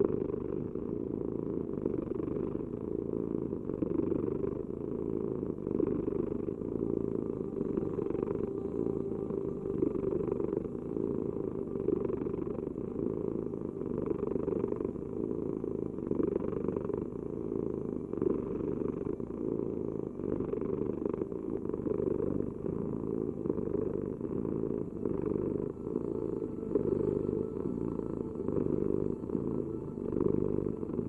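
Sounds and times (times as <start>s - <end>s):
cat purring: 0.0s - 31.0s.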